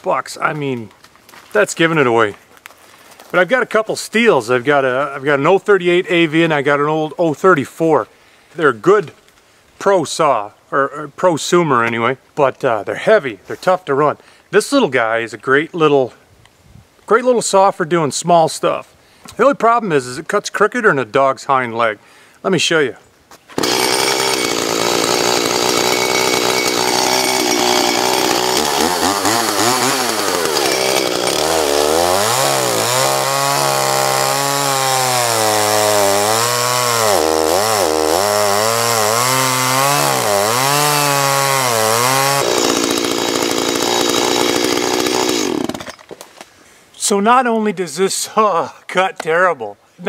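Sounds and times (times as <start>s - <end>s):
chainsaw cutting through log: 23.6s - 46.1s.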